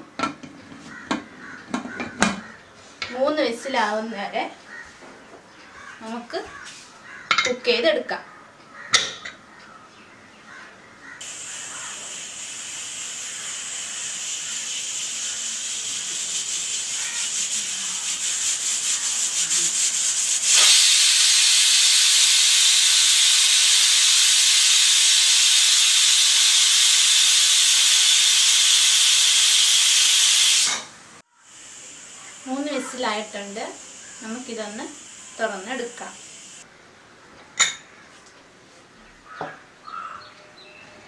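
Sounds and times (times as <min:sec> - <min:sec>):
steam hissing with flutter: 0:11.2 - 0:36.7
pressure cooker whistle: 0:11.3 - 0:19.2, 0:20.1 - 0:30.9.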